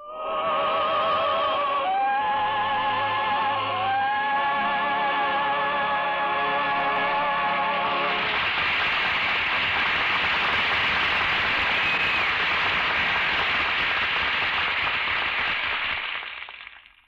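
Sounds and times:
audience applauding: 0:07.7 - 0:17.0.

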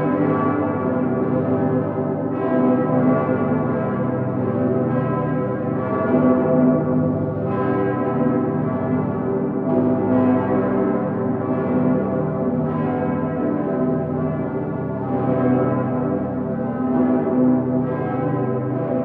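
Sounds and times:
church bells pealing: 0:00.0 - 0:19.0.

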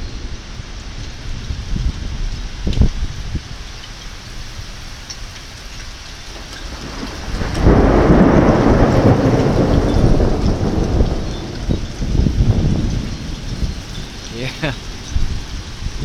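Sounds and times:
heavy rain: 0:00.0 - 0:16.0
thunderclap rumbling: 0:06.3 - 0:16.0.

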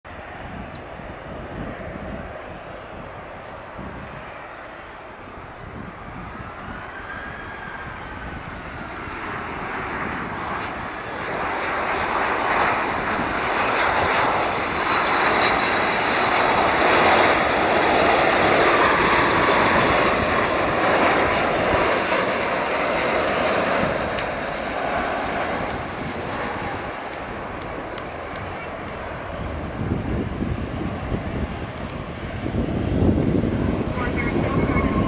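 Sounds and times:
jet engine rumble: 0:00.1 - 0:35.0.

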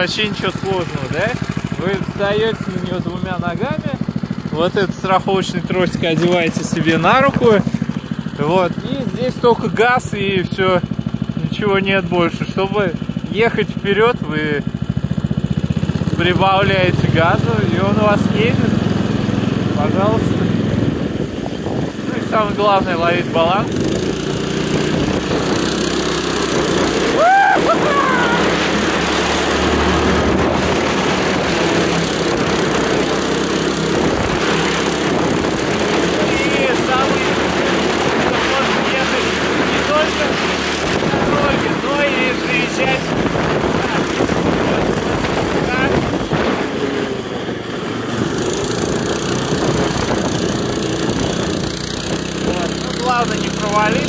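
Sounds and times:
small gasoline engine running: 0:00.0 - 0:54.0
wind noise: 0:20.2 - 0:26.0, 0:29.6 - 0:38.8, 0:39.4 - 0:42.0, 0:42.7 - 0:52.2.

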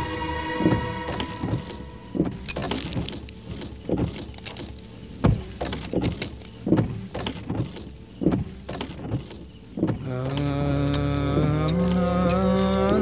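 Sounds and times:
chant-like film music: 0:00.0 - 0:02.4, 0:10.0 - 0:13.0.

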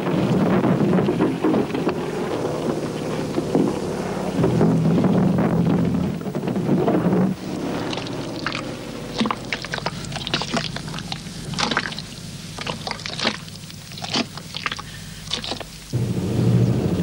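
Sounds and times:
wet mud squelching: 0:06.2 - 0:15.9.

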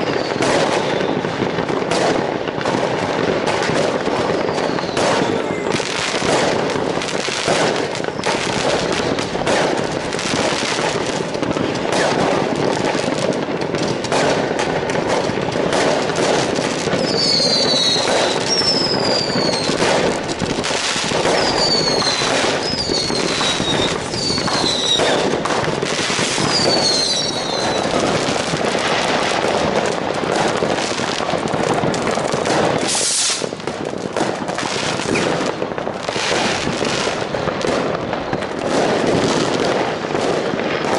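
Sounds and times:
falling firework whistles: 0:00.0 - 0:01.3, 0:04.1 - 0:06.6, 0:07.4 - 0:10.5, 0:16.9 - 0:28.9, 0:32.5 - 0:33.6
firecracker crackle: 0:00.0 - 0:40.9
rocket bangs: 0:00.0 - 0:40.9
loud firework hiss: 0:03.6 - 0:33.8.

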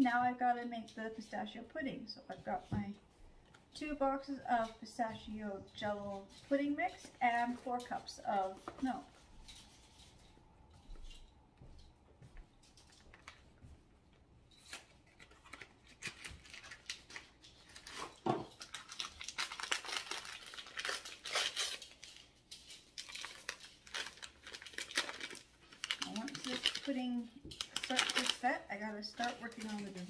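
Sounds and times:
packaging tearing and crinkling: 0:14.6 - 0:28.5.

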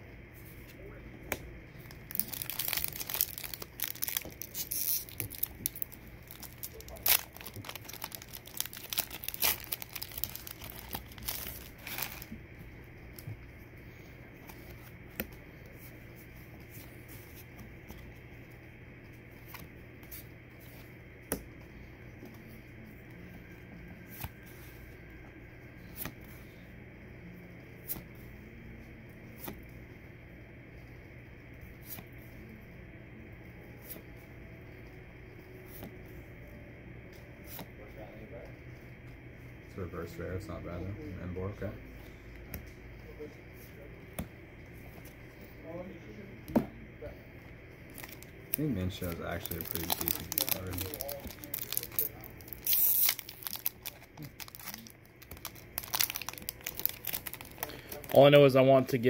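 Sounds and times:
foil wrapper crinkling and tearing: 0:01.8 - 0:12.3, 0:47.9 - 0:58.3.

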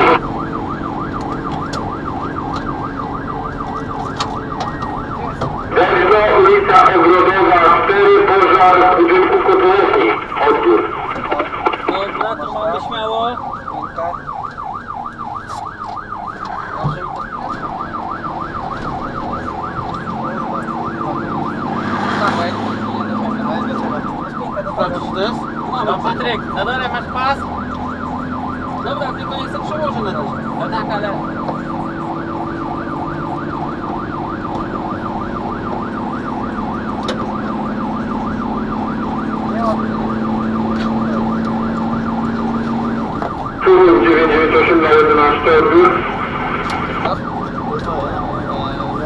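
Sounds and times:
engine and road noise: 0:00.0 - 0:49.0
fire engine siren yelp: 0:00.0 - 0:49.0.

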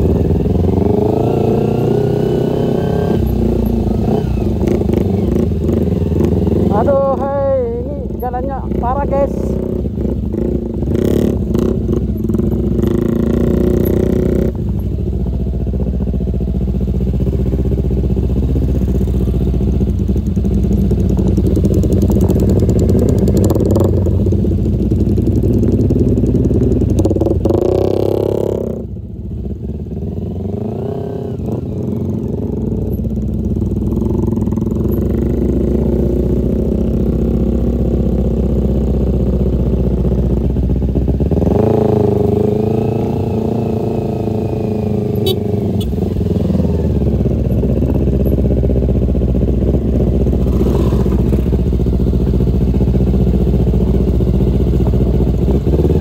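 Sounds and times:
motorcycle engine running: 0:00.0 - 0:56.0.

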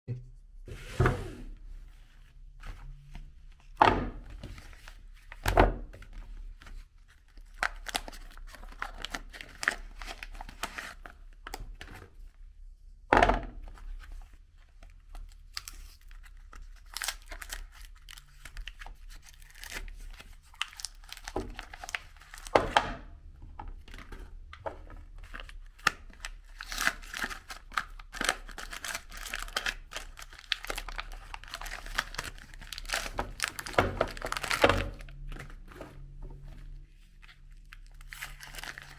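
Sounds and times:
wrappers rustling and tearing: 0:07.2 - 0:11.4, 0:15.1 - 0:22.6, 0:25.1 - 0:35.8, 0:37.2 - 0:38.9.

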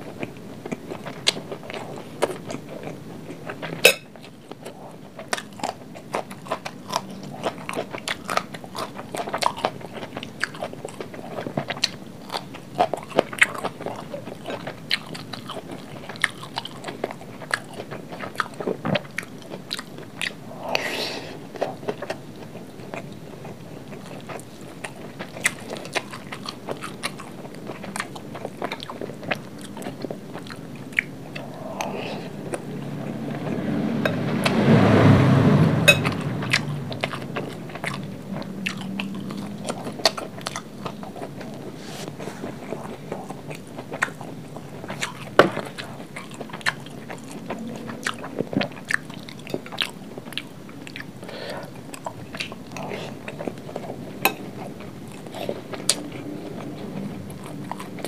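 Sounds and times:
chewing with wet smacks: 0:00.0 - 0:34.8, 0:35.9 - 0:58.0
deep swelling sound: 0:31.3 - 0:40.0.

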